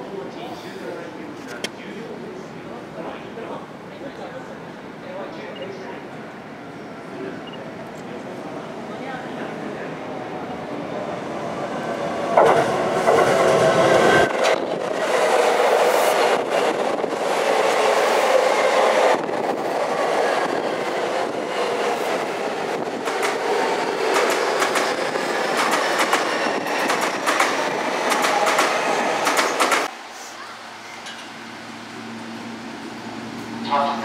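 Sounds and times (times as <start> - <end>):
electric train running noise: 11.9 - 29.9.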